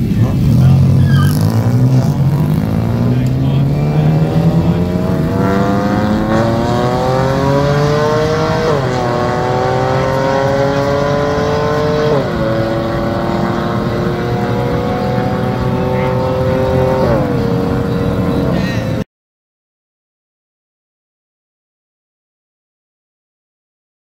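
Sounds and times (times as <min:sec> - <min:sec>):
race car engine accelerating: 0:00.0 - 0:19.0.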